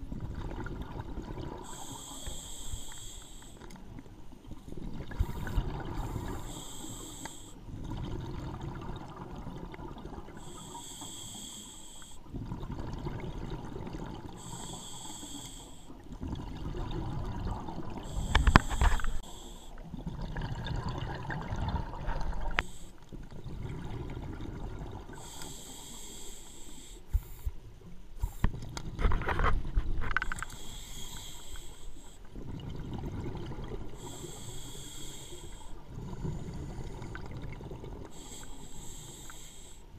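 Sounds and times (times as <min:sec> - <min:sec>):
exhaled air bubbling: 0:00.0 - 0:27.5, 0:28.2 - 0:39.8
regulator hissing inhale: 0:01.6 - 0:03.8, 0:05.2 - 0:07.6, 0:10.4 - 0:12.3, 0:14.3 - 0:16.0, 0:18.0 - 0:19.8, 0:22.4 - 0:23.1, 0:25.2 - 0:27.6, 0:30.2 - 0:32.3, 0:34.0 - 0:37.2, 0:38.1 - 0:39.9.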